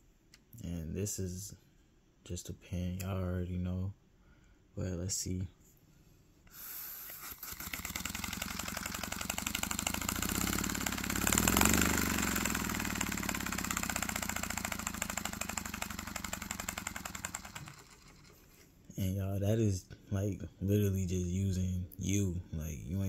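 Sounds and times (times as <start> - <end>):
paper model engine puffing: 6.5 - 18.7.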